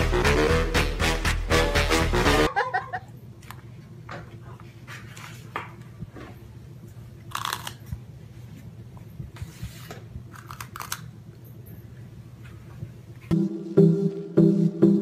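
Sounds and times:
low room hum: 2.4 - 13.4.

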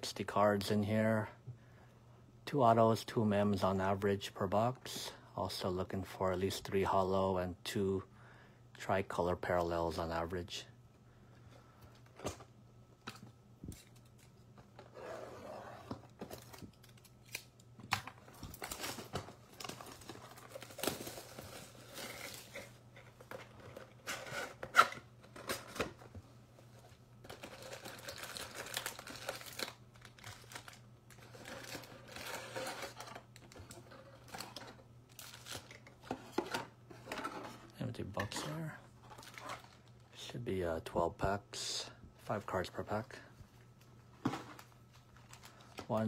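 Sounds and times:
shrink wrap tearing and crumpling: 27.3 - 35.8.

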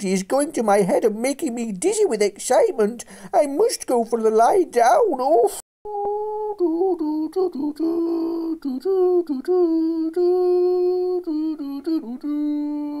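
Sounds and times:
person humming a slow tune: 5.9 - 13.0.

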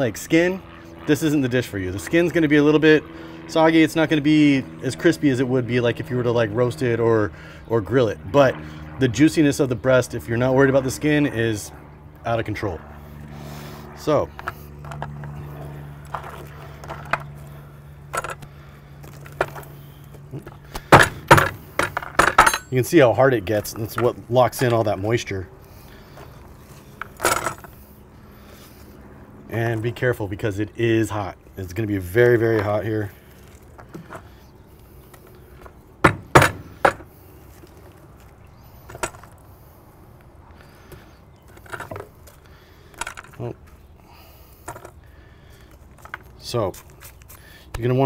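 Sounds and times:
sharp loud knocks: 36.0 - 37.0.

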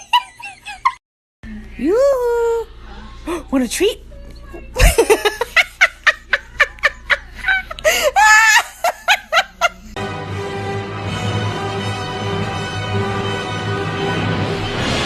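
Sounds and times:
person laughing: 0.0 - 1.0, 4.8 - 10.0
music: 10.0 - 15.0.

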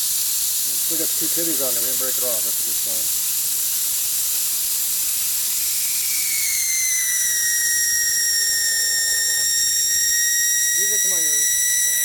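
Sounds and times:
air hissing from tire valve: 0.0 - 12.0
whistle of escaping air: 3.2 - 12.0.

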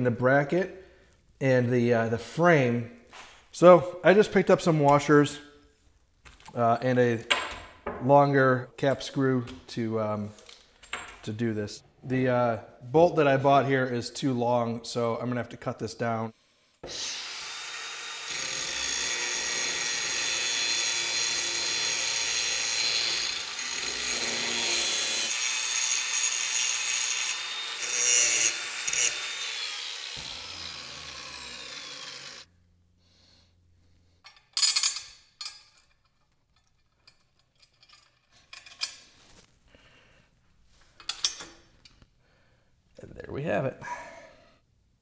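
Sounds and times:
angle grinder cutting metal: 16.8 - 32.5
metal parts clanking: 34.2 - 39.2.

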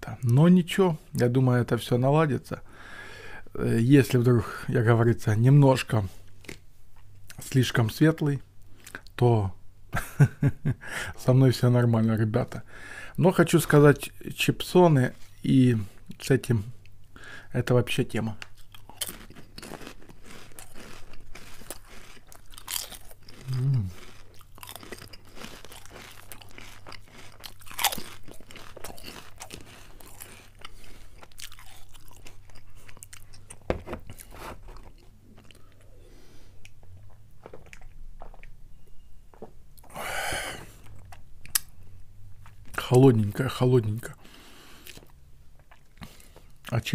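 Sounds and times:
chips crunching while chewed: 18.4 - 35.8.

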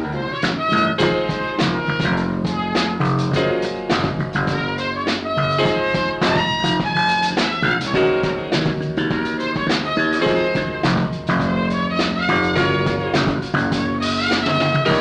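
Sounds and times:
drum kit beat: 0.0 - 15.0
pitched instruments: 0.0 - 15.0.

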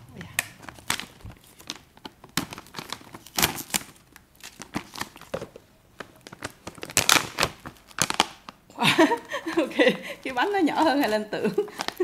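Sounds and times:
snack pouch crinkling and tearing: 0.4 - 5.4, 6.0 - 8.7, 11.0 - 12.0.

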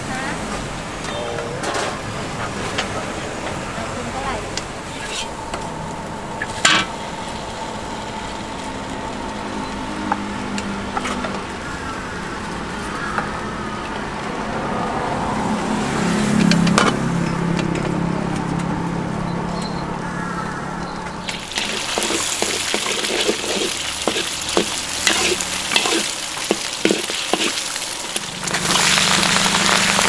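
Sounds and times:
steady traffic din: 0.0 - 30.0
vehicle engine running close: 0.0 - 30.0.

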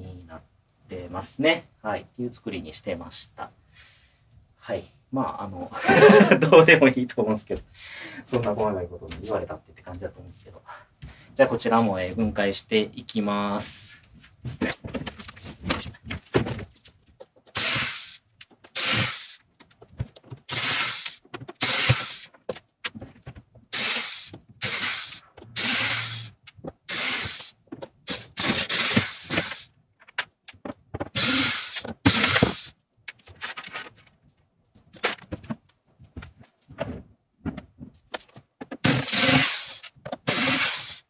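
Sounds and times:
power driver running in bursts: 38.9 - 41.0.

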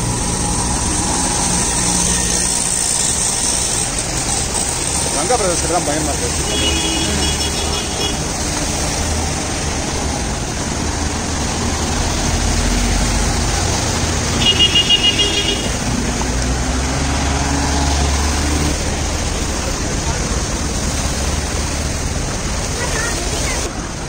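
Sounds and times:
vehicle engines running: 0.0 - 24.0
water splashing under tyres: 0.0 - 24.0
vehicle horn tooting: 6.4 - 8.3, 14.4 - 15.8.

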